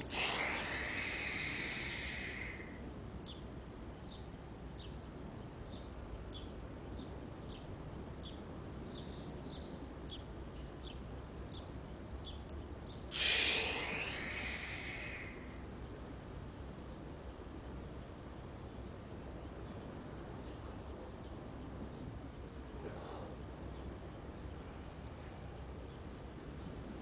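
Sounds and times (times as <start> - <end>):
bird chirping: 0.0 - 3.4, 5.7 - 15.6.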